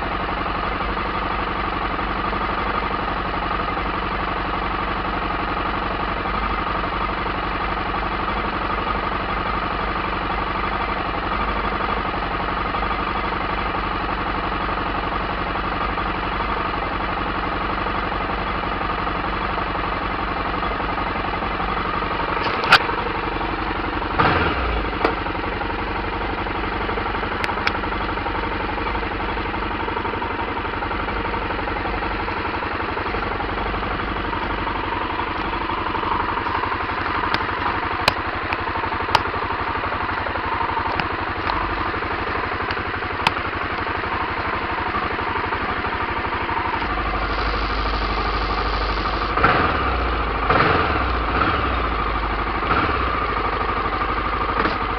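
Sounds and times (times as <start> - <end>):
motorcycle engine idling: 0.0 - 54.9.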